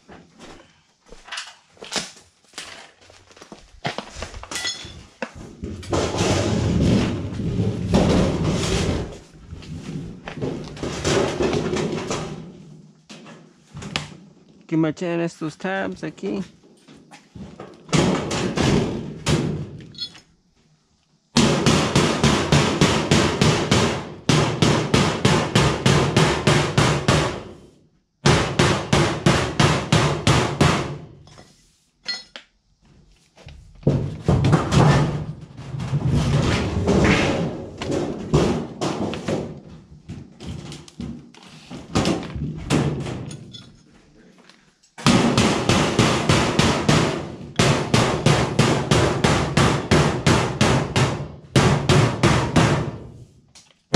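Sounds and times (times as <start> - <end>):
hammer striking sheet metal: 45.0 - 53.0.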